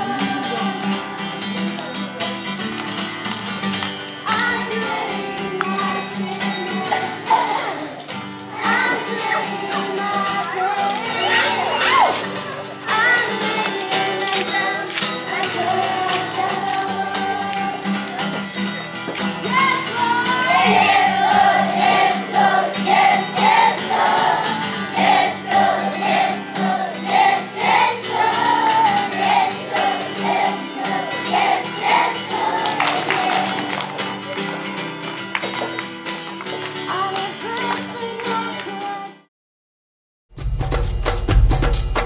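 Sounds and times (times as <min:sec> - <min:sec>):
children singing: 0:00.0 - 0:02.0, 0:04.2 - 0:34.2
musical accompaniment: 0:00.0 - 0:39.2, 0:40.4 - 0:42.0.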